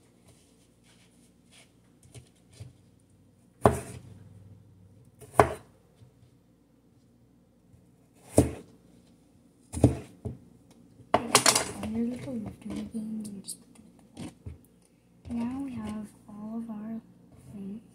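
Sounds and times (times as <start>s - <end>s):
knife chopping on cutting board: 3.6s - 4.1s, 5.2s - 5.7s, 8.2s - 8.7s, 9.7s - 10.4s.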